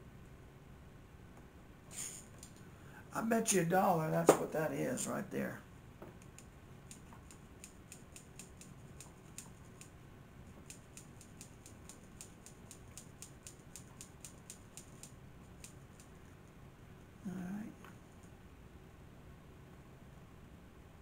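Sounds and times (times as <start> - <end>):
faint rapid light clicking: 6.2 - 10.0, 10.6 - 16.1.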